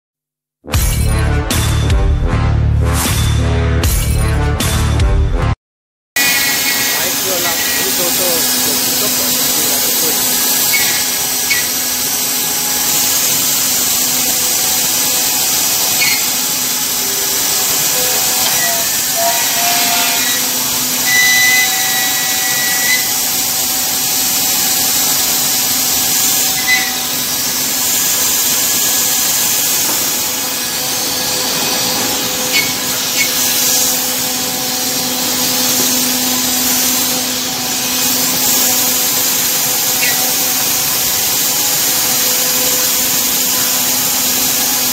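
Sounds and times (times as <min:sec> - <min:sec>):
machine hum: 0:06.2 - 0:44.9
router bit cutting wood: 0:06.2 - 0:44.9.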